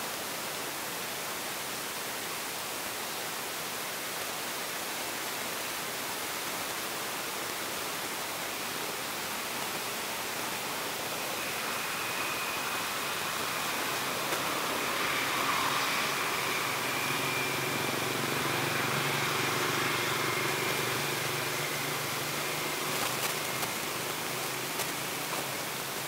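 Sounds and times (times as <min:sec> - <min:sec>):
outdoor background hiss: 0:00.0 - 0:26.0
faint high steady tone: 0:08.8 - 0:26.0.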